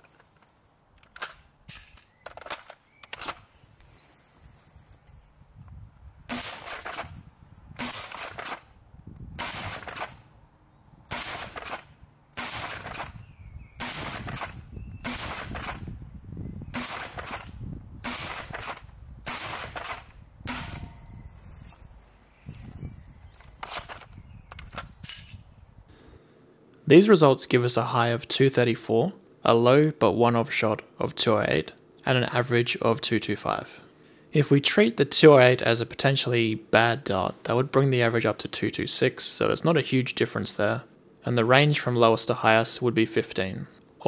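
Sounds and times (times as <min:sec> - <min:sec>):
foam dart blaster clacking and firing: 0:06.3 - 0:07.2, 0:07.8 - 0:08.7, 0:09.4 - 0:10.2, 0:11.1 - 0:13.2, 0:13.8 - 0:15.9, 0:16.7 - 0:21.0.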